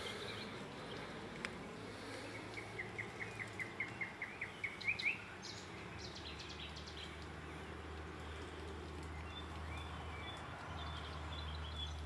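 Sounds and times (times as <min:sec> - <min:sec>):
nightingale singing: 0:02.2 - 0:07.2.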